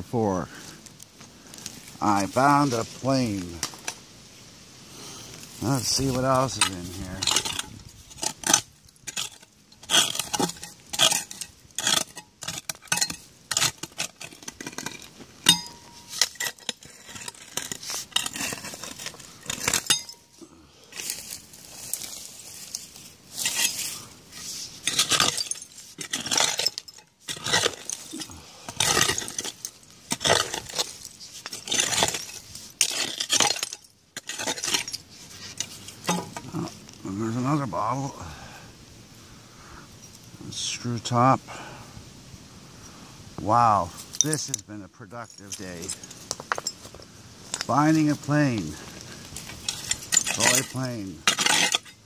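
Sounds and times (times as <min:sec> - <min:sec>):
digging tool scraping soil: 0:05.5 - 0:20.2, 0:20.9 - 0:33.6, 0:34.2 - 0:37.4, 0:47.7 - 0:52.0
tool clinking against glass: 0:08.5 - 0:13.7, 0:14.7 - 0:16.8, 0:19.6 - 0:20.3, 0:49.6 - 0:52.0.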